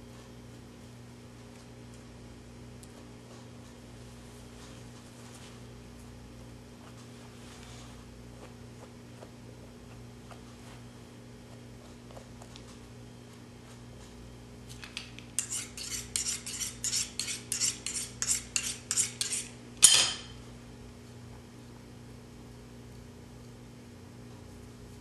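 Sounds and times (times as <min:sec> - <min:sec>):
metal tool scraping hide: 0:15.4 - 0:20.0.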